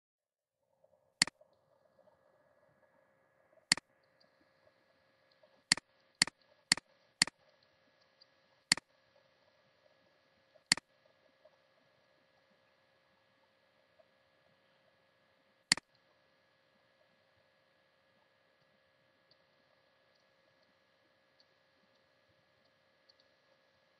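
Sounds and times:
faint steady hum: 0.6 - 23.9
computer mouse clicking: 5.4 - 7.4.

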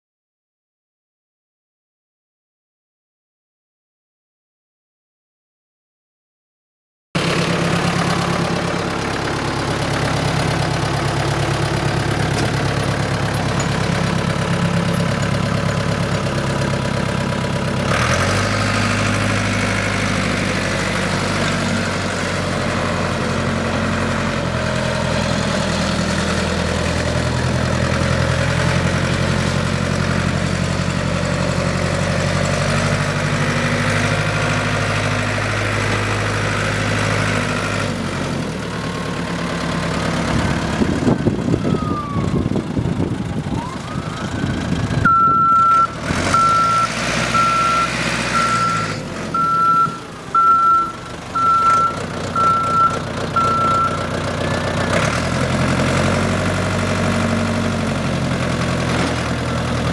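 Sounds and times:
diesel engine idling: 7.2 - 59.9.

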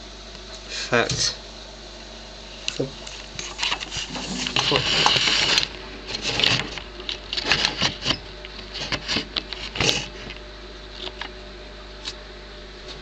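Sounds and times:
handling noise clicks and rustles: 2.7 - 11.4.

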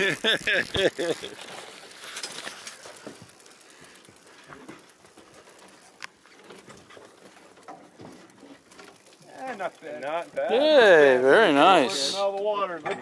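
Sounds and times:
camera rustling against clothing: 0.0 - 9.2.

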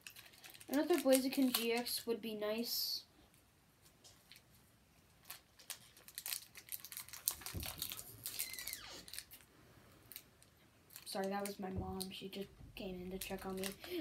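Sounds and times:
foil wrapper crinkling and tearing: 0.0 - 2.1, 5.2 - 9.5, 10.1 - 12.2, 13.1 - 14.0
brief falling squeak: 8.4 - 9.1.

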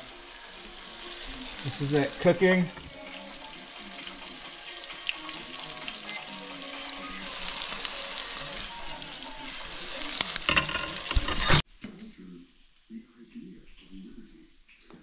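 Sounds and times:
fish fillets sizzling in oil: 0.0 - 11.6.

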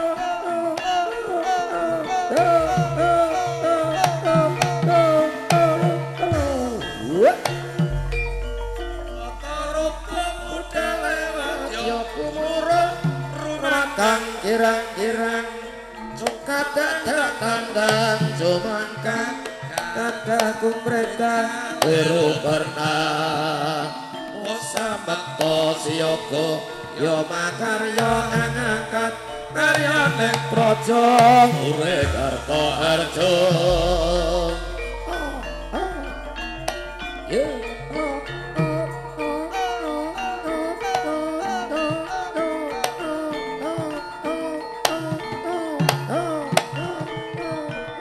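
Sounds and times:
gamelan music: 0.0 - 48.0
struck metallophone notes: 0.0 - 48.0
wavering high melody: 0.0 - 48.0
low hum: 32.0 - 40.0.

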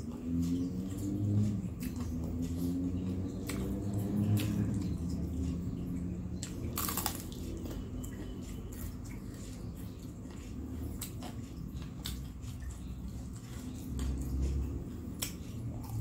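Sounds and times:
wet chewing and squishing: 0.0 - 16.0
crisp crunches of biting: 6.7 - 7.4.

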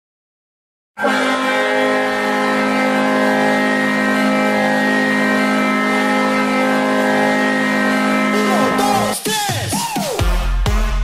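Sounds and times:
goal horn blast: 1.0 - 9.2.

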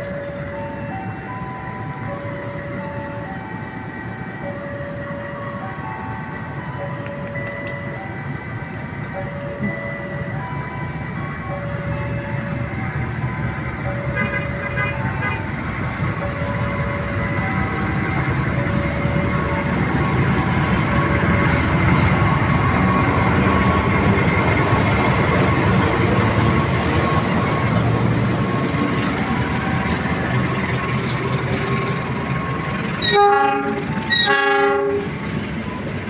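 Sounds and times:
locomotive engine running: 0.0 - 36.0
train horn blasts: 14.1 - 15.5, 33.0 - 35.2
train wheels clattering on rails: 14.9 - 36.0.

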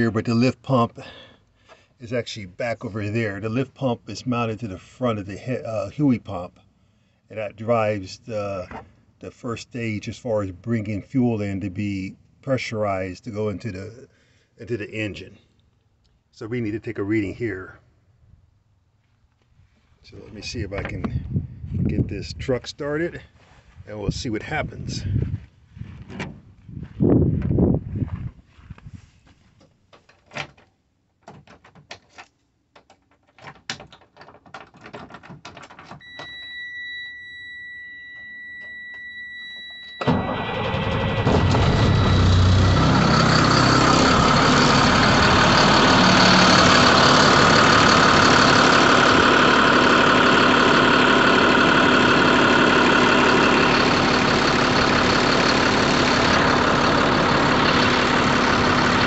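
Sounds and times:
electronic warning tone: 36.0 - 40.5, 41.2 - 49.7
diesel engine cranking and idling: 40.0 - 59.0.

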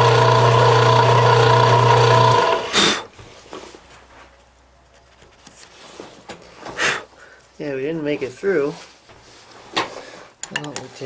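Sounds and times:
milling machine motor humming: 0.0 - 2.8.

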